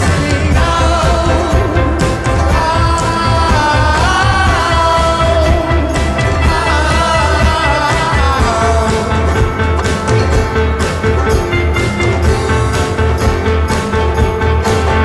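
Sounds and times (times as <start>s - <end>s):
woman singing lead: 0.0s - 10.5s
man singing along: 0.0s - 10.8s
banjo: 0.0s - 15.0s
drum kit: 0.0s - 15.0s
violin: 0.0s - 15.0s.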